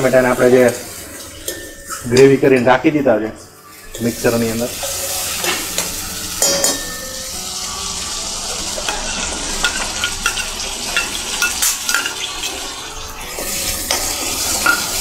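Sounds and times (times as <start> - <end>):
metal spoon scraping pan: 3.6 - 6.9, 8.8 - 12.6
paste sizzling in oil: 3.6 - 15.0.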